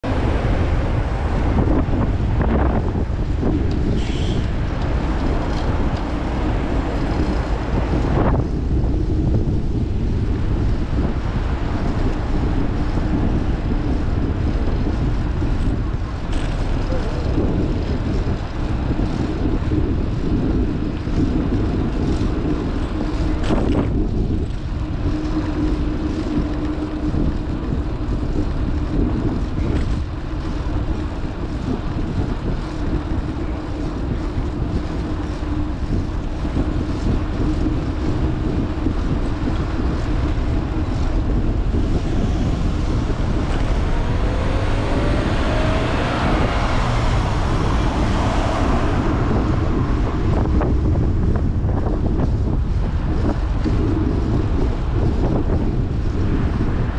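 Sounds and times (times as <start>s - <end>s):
road rumble: 0.0s - 56.9s
wind buffeting microphone: 0.0s - 56.9s
steady hum: 21.4s - 56.9s
rising whine: 21.9s - 56.9s.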